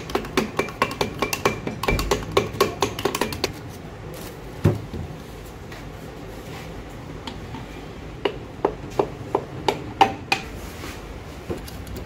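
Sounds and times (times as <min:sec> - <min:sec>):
hammer tapping on metal: 0:00.0 - 0:03.6, 0:08.2 - 0:10.5.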